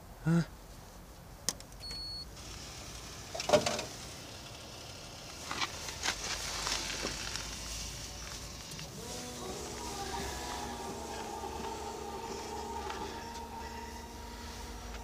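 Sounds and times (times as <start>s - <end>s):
small motor whirring: 7.4s - 15.0s.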